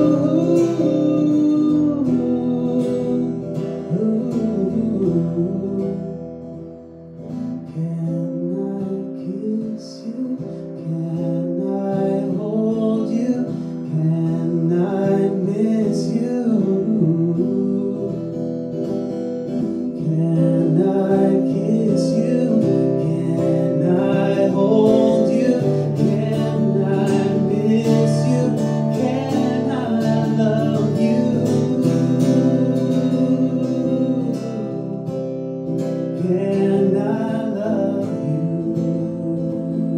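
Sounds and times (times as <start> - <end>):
man singing: 0.0 - 6.7, 7.4 - 39.9
acoustic guitar: 0.0 - 39.9.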